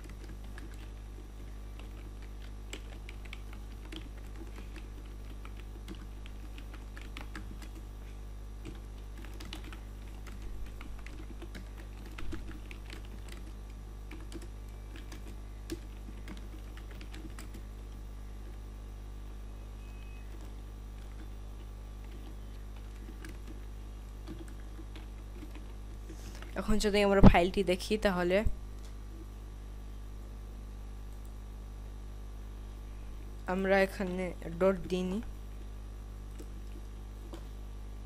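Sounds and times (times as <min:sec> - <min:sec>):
computer keyboard typing: 0:00.0 - 0:07.9, 0:08.6 - 0:18.0, 0:20.2 - 0:26.6, 0:36.3 - 0:37.4
steady low hum: 0:00.0 - 0:38.0.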